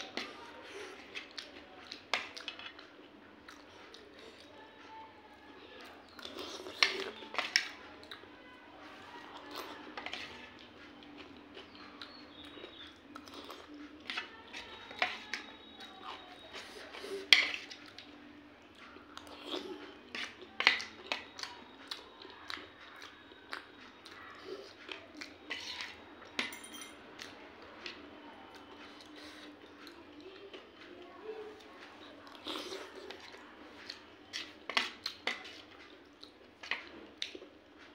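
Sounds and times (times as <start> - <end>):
eating sounds: 0.0 - 4.5, 5.9 - 8.3, 8.9 - 26.3, 31.5 - 37.9
spoon clinking against steel bowl: 26.4 - 27.0.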